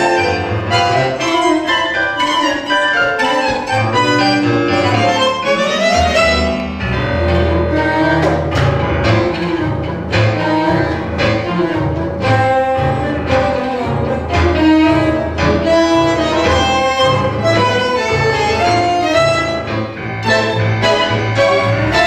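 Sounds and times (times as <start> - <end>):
bandoneon: 0.0 - 22.0
double bass: 0.0 - 22.0
guitar: 0.0 - 22.0
piano: 0.0 - 22.0
violin: 0.0 - 22.0.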